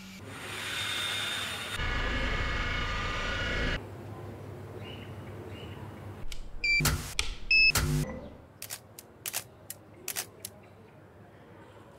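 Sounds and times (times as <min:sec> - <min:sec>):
sharp clicks: 0:08.6 - 0:10.6.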